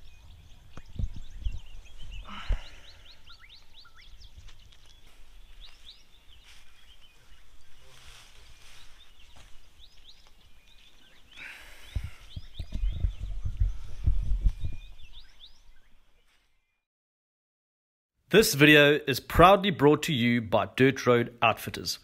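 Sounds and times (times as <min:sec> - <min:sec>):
birds chirping: 0:00.0 - 0:16.9.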